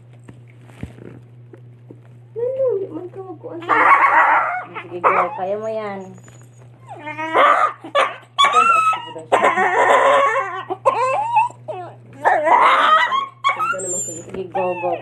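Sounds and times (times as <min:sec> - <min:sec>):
dog whining and yelping: 0:03.6 - 0:15.0.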